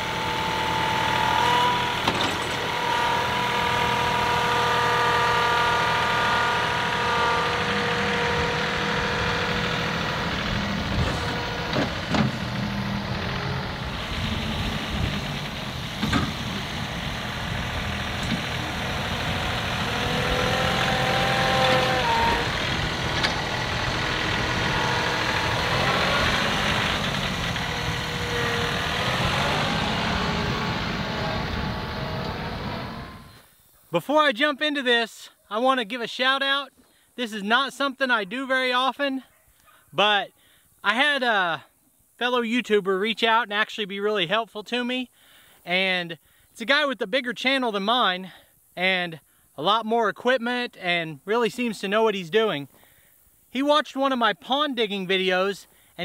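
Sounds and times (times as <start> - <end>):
loader scraping dirt: 0.0 - 33.5
tractor diesel engine under load: 0.0 - 33.5
whining note: 0.0 - 33.5.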